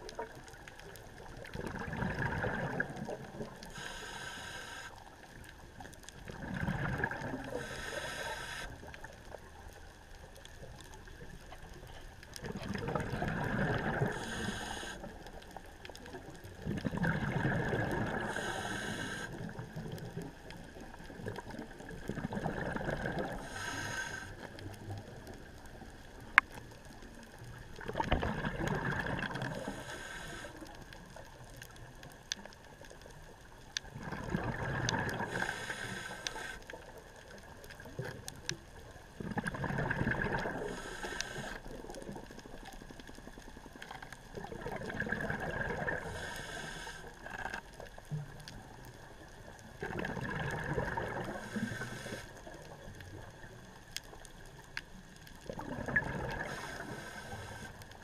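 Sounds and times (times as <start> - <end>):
gurgling exhaled bubbles: 0.0 - 3.7, 6.1 - 8.2, 12.4 - 15.2, 16.1 - 26.3, 26.9 - 31.3, 33.8 - 38.4, 39.0 - 42.8, 43.8 - 48.4, 49.6 - 53.7, 55.3 - 57.7
regulator hiss: 3.7 - 5.0, 7.6 - 8.8, 14.1 - 15.1, 18.2 - 19.4, 23.4 - 24.4, 29.6 - 30.6, 35.3 - 36.6, 40.7 - 41.6, 46.1 - 47.1, 51.4 - 52.3, 56.5 - 57.8.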